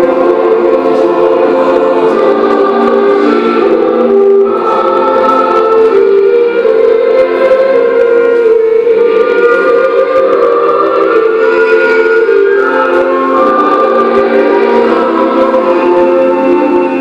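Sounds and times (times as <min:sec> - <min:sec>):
ensemble playing slow chords: 0:00.0 - 0:17.0.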